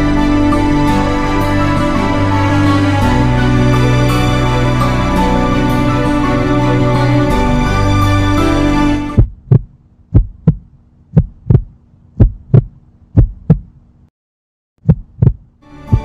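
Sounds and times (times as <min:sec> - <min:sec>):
background music: 0:00.0 - 0:09.3, 0:15.6 - 0:16.0
heartbeat thumps: 0:09.2 - 0:13.8, 0:14.8 - 0:16.0.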